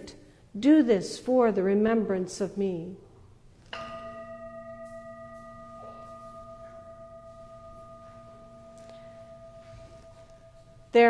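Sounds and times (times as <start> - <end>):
singing bowl ringing: 3.8 - 11.0.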